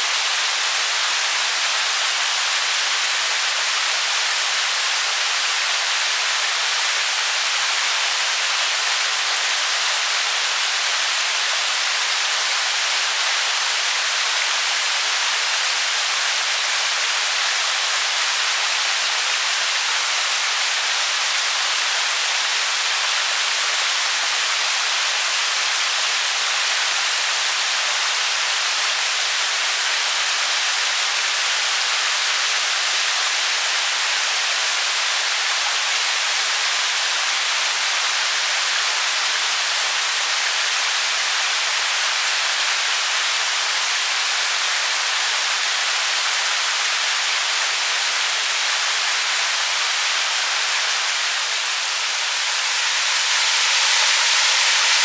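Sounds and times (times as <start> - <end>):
brook water rushing: 45.0 - 55.0.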